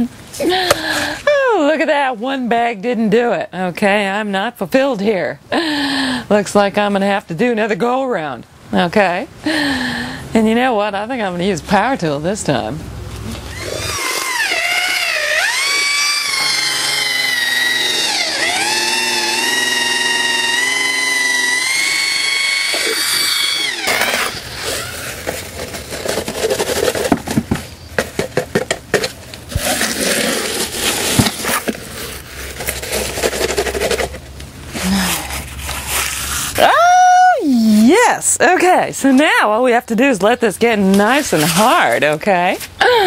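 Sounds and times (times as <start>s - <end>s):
electric drill mixing concrete: 13.3s - 26.9s, 29.5s - 34.2s
trowel scraping and knocking: 23.8s - 34.3s.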